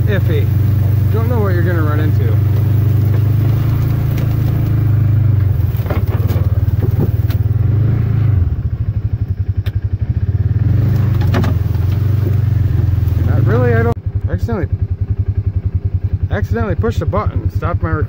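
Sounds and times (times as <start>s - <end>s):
plow knocking and clattering: 0.0s - 7.6s, 10.8s - 14.0s
utility vehicle engine running: 0.0s - 18.0s.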